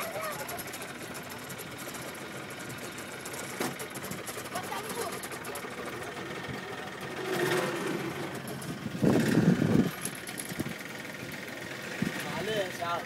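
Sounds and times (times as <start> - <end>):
small boat engine running: 0.0 - 13.0.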